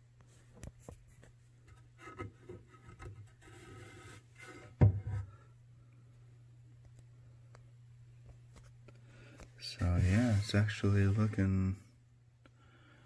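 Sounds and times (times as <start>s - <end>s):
wood rubbing and scraping: 9.8s - 11.5s.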